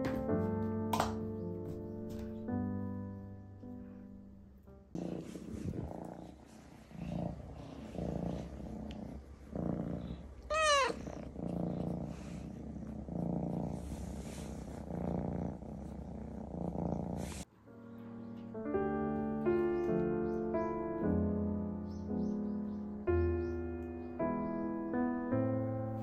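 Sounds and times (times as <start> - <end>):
cat purring: 4.8 - 17.5
cat meow: 10.4 - 11.1.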